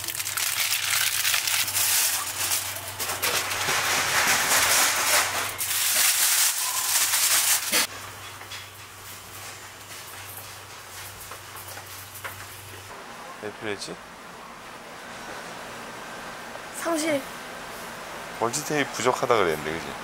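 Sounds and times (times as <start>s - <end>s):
plastic and cardboard rustling: 0.0s - 7.9s.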